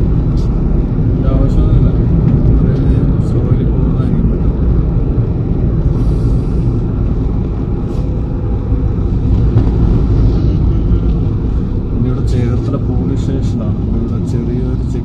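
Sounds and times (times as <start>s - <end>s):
car engine and tyre noise: 0.0s - 15.0s.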